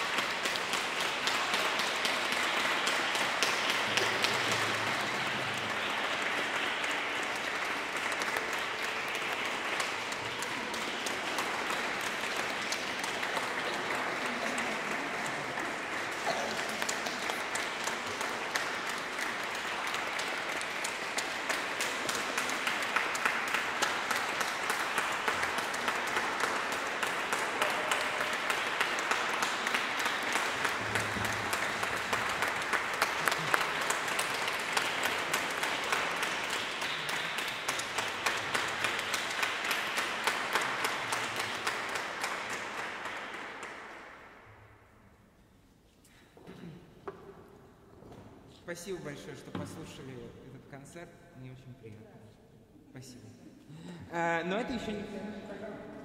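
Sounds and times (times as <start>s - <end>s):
audience applauding: 0.0s - 44.4s.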